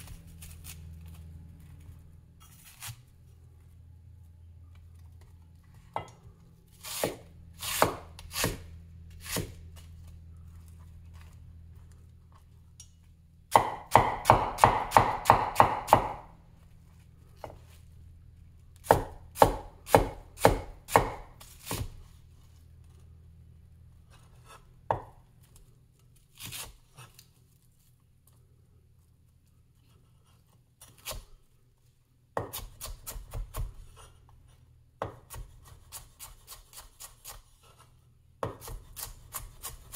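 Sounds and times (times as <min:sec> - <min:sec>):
cleaver chopping on wooden board: 0:06.9 - 0:09.6, 0:13.5 - 0:16.3, 0:18.8 - 0:22.0.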